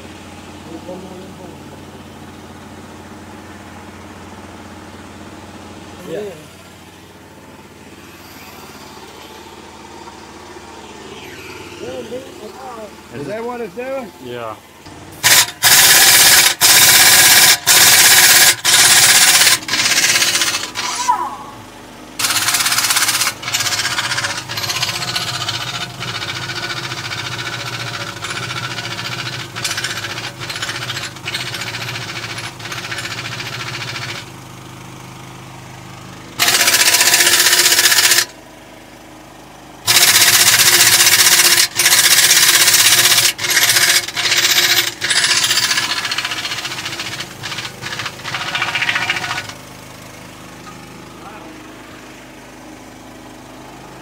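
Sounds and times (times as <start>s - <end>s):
pneumatic impact wrench rattling: 7.9s - 10.2s, 15.2s - 21.2s, 22.2s - 34.3s, 36.4s - 38.4s, 39.8s - 51.1s.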